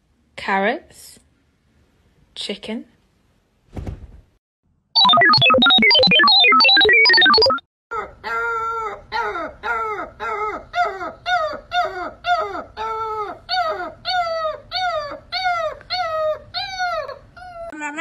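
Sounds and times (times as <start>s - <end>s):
puppy baying: 8.0s - 17.8s.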